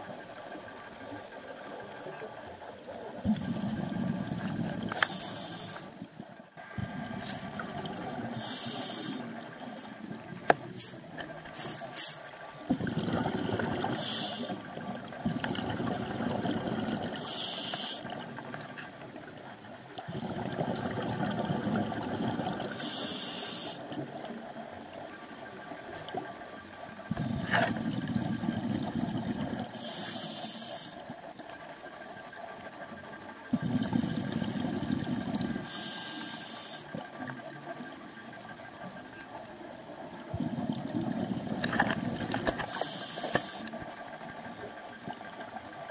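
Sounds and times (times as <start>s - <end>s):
exhaled air bubbling: 0.0s - 38.8s, 39.8s - 45.9s
regulator inhalation hiss: 5.0s - 5.9s, 8.4s - 10.0s, 14.0s - 14.6s, 17.2s - 18.1s, 22.7s - 23.9s, 29.8s - 31.0s, 35.6s - 36.9s, 42.7s - 43.8s.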